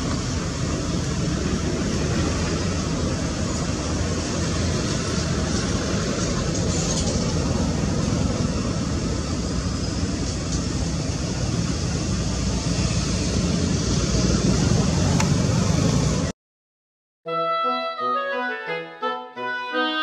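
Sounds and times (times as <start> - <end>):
music: 17.2 - 20.0.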